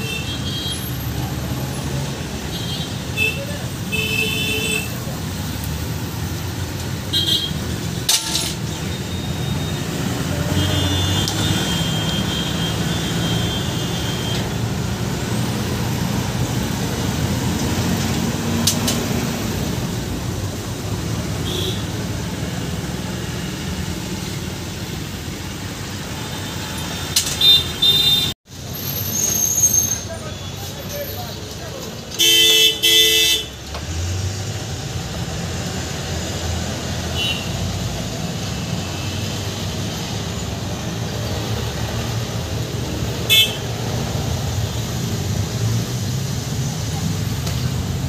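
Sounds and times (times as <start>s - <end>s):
road traffic rumble: 0.0s - 48.0s
car horn: 7.1s - 7.6s, 10.4s - 14.5s, 21.4s - 22.0s, 27.2s - 28.4s, 32.2s - 33.6s, 37.1s - 37.6s, 43.3s - 43.7s.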